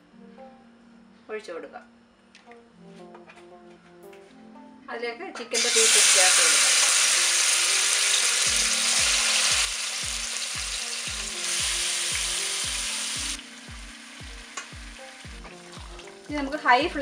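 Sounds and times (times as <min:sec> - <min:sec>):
chicken sizzling in hot oil: 0:05.6 - 0:16.7.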